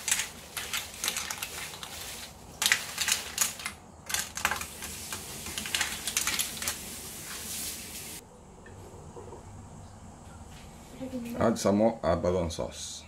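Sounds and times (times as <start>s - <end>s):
clam shells clattering in a pan: 0.0s - 6.9s
frying pan hissing: 4.7s - 8.2s.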